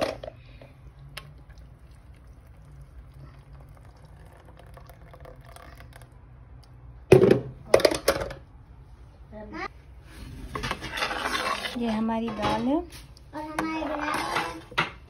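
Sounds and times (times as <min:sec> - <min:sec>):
thick liquid pouring into pan: 0:01.2 - 0:06.2.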